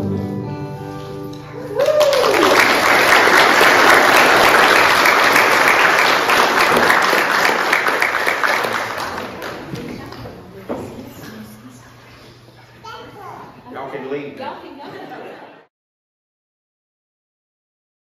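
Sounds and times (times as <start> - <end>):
person whooping: 1.5 - 2.6
congregation applauding: 1.7 - 10.3.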